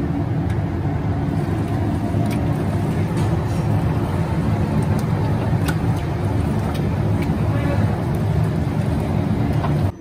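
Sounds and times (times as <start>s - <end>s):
low machinery rumble: 0.0s - 10.0s.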